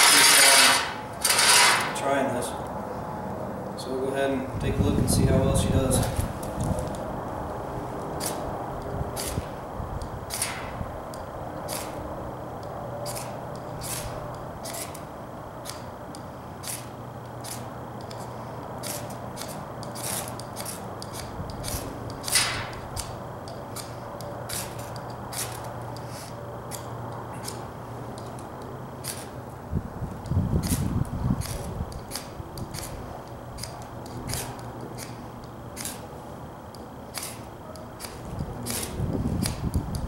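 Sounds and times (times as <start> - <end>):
knife scraping ferro rod: 0.0 - 2.0, 13.0 - 15.0, 16.6 - 27.6, 29.0 - 29.4, 37.1 - 39.7.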